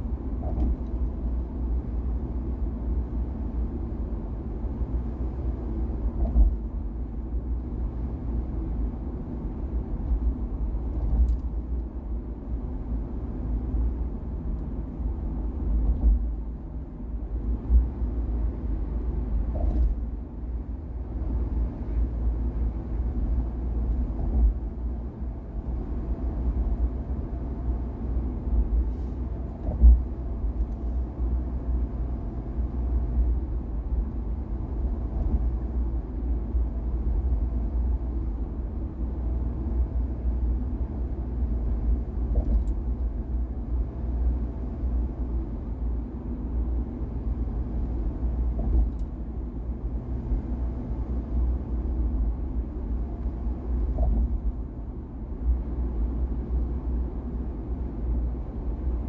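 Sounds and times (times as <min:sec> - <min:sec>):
tyres and engine rumble: 0:00.0 - 0:59.0
car thumps: 0:48.5 - 0:49.0, 0:53.9 - 0:54.5.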